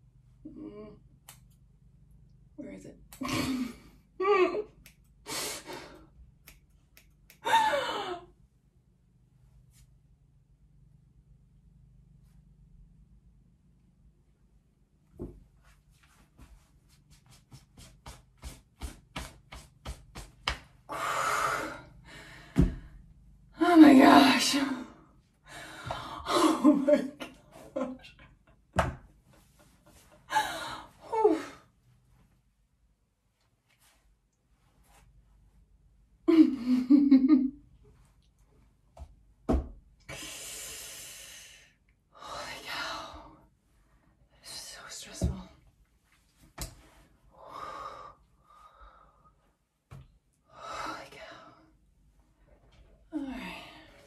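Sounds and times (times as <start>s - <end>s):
woman humming laugh: 3.2s - 4.7s, 36.3s - 37.6s.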